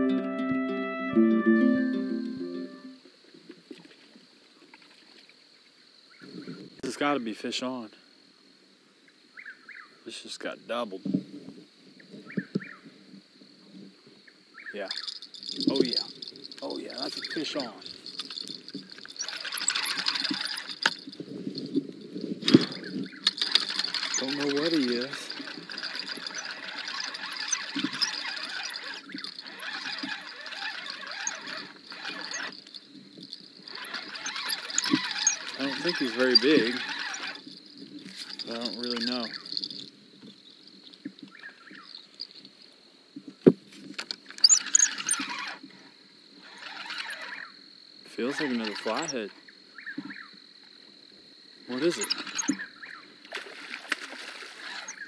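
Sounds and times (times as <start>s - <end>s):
insects chirping: 1.9s - 55.0s
fishing reel clicking: 14.9s - 21.2s, 22.5s - 39.9s, 44.4s - 45.6s, 46.4s - 47.5s, 48.2s - 49.2s, 51.7s - 52.6s, 54.6s - 55.0s.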